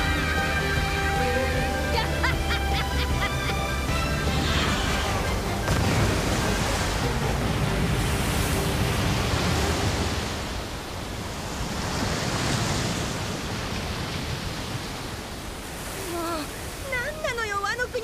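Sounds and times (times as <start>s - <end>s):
background music: 0.0s - 10.6s
waterfall rushing: 0.0s - 18.0s.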